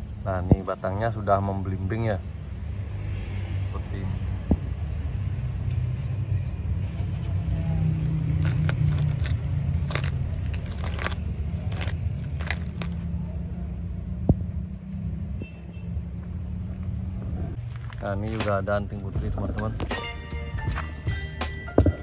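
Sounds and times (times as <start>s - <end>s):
vehicle engine rumbling: 4.3s - 22.0s
potted plants clicking and rustling: 7.2s - 13.2s, 17.6s - 19.9s.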